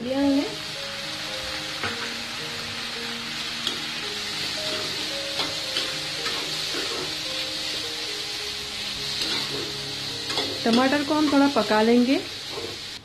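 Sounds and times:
vegetables sizzling in hot oil: 0:00.0 - 0:13.0
spatula scraping and tapping pan: 0:09.2 - 0:11.4.

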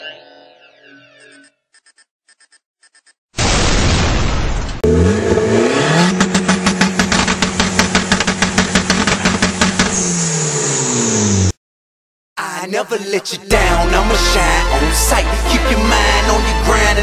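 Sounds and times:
car engine revving with crackle: 0:04.7 - 0:11.6.

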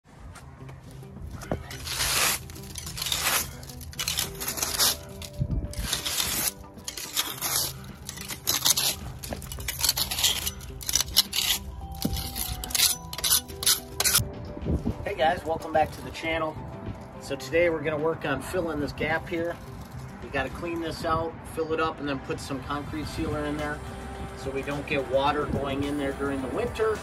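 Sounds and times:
hand tool scraping concrete: 0:01.4 - 0:14.2, 0:18.7 - 0:21.0.

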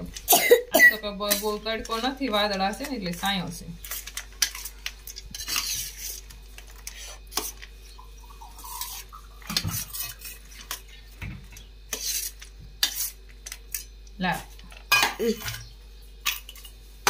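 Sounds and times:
spoon scraping a metal plate: 0:05.3 - 0:06.2, 0:09.6 - 0:10.8, 0:11.9 - 0:13.8.

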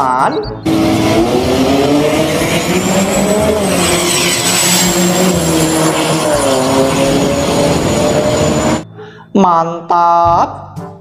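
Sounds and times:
vehicle engine running: 0:00.4 - 0:08.8
faint high whine: 0:02.3 - 0:08.8.

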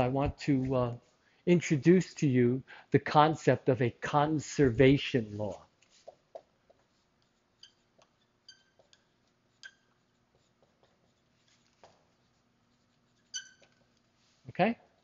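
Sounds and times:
marker writing on whiteboard: 0:04.6 - 0:14.3
marker tip squeaks: 0:07.3 - 0:10.7, 0:13.1 - 0:14.0.

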